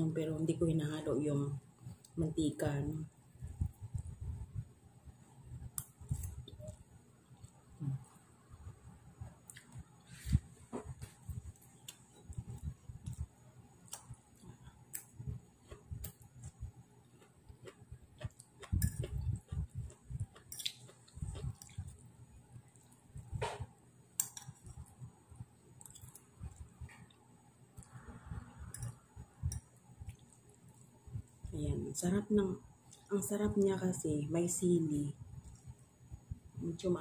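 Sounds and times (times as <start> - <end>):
person chewing noodles: 11.1 - 23.2, 25.6 - 28.0, 28.6 - 31.4.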